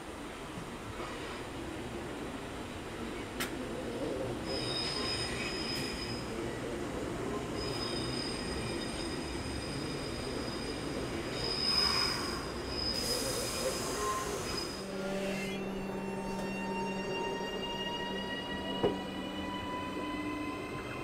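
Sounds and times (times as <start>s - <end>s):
train wheels squealing: 4.4s - 21.0s.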